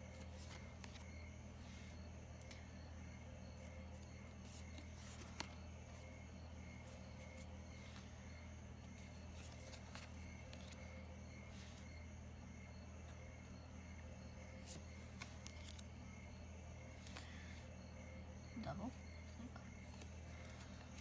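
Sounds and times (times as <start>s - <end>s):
trading cards clicking and rustling: 0.0s - 1.3s, 3.6s - 6.1s, 8.8s - 10.9s, 14.6s - 16.2s, 17.0s - 17.4s
steady low hum: 0.0s - 21.0s.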